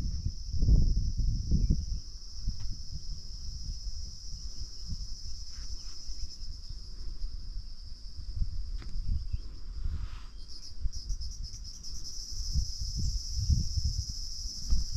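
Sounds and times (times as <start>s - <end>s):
high-pitched insect chorus: 0.0s - 14.9s
wind buffeting microphone: 0.0s - 14.9s.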